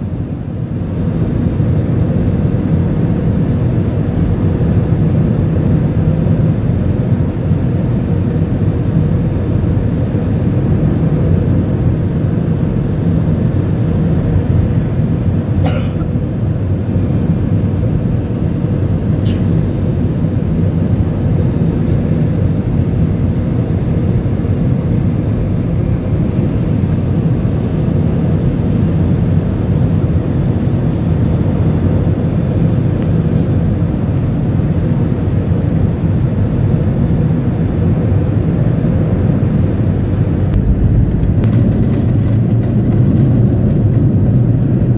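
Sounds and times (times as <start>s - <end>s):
jet engines and airflow in cabin: 0.0s - 44.9s.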